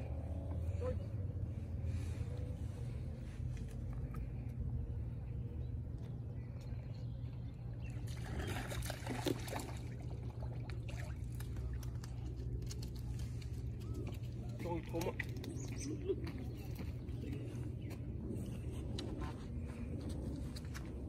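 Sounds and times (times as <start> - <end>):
steady low rumble: 0.0 - 21.0
fish splashing water: 8.0 - 13.1.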